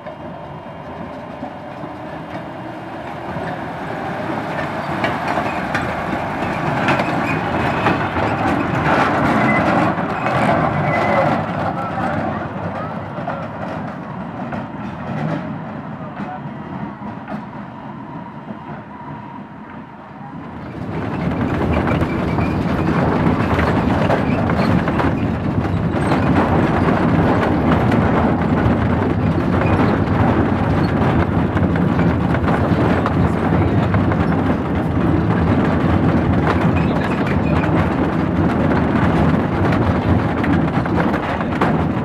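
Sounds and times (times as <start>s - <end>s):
train wheels rumbling on rail: 0.0s - 42.0s.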